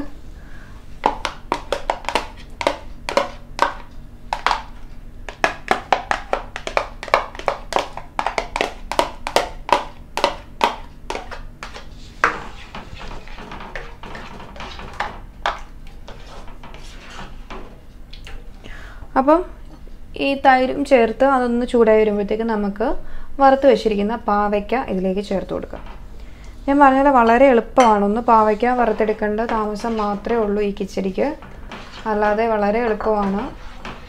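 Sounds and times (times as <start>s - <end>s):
low steady hum: 0.0s - 34.0s
utensils scraping a pan: 11.6s - 17.8s, 28.1s - 34.0s.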